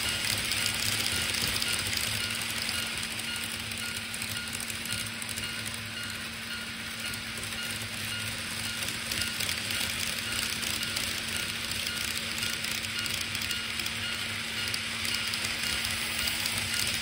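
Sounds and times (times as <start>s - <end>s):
model train motors whirring: 0.0s - 17.0s
wheels on rails: 0.0s - 17.0s.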